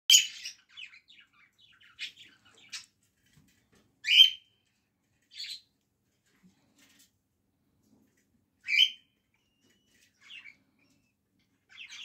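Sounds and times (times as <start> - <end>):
bird chicks chirping: 0.1 - 5.8, 8.5 - 12.0.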